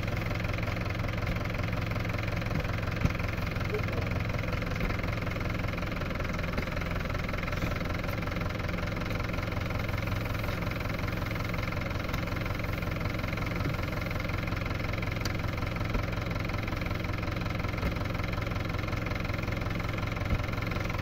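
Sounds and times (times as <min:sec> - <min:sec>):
tractor diesel engine idling: 0:00.0 - 0:21.0.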